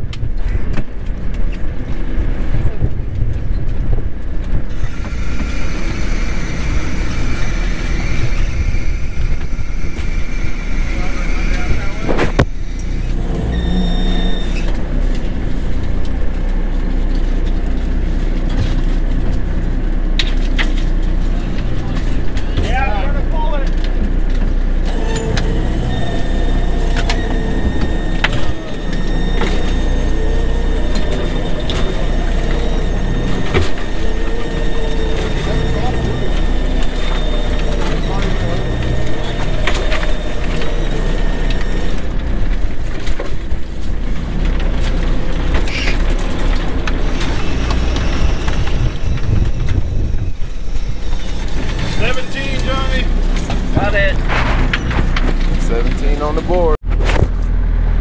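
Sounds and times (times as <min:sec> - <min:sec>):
boat engine rumbling: 0:00.0 - 0:58.0
faint high whine: 0:04.8 - 0:14.7.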